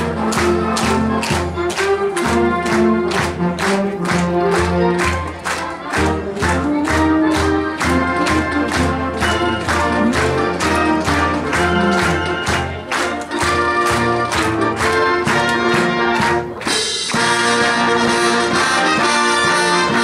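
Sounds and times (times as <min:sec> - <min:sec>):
brass holding chords: 0:00.0 - 0:20.0
fast steady drum beat: 0:14.4 - 0:20.0.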